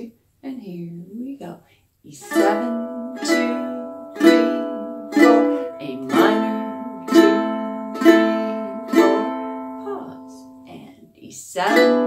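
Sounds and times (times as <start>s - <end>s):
ukulele chords strummed: 2.2s - 10.8s, 11.6s - 12.0s.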